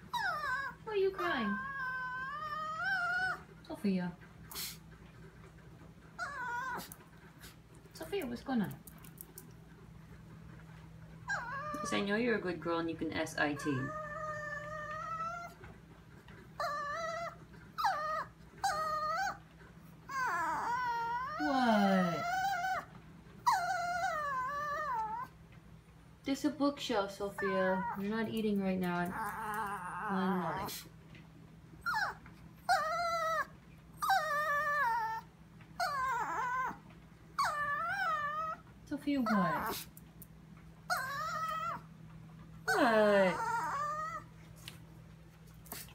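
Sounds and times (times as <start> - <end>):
dog whining: 0.0 - 3.6, 6.0 - 7.5, 11.2 - 12.2, 13.4 - 15.8, 16.4 - 25.5, 27.2 - 30.9, 31.8 - 39.9, 40.9 - 44.6.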